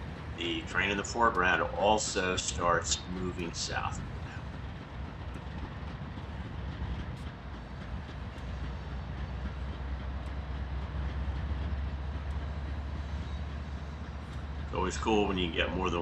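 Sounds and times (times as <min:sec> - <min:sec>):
locomotive rumbling: 0:00.0 - 0:16.0.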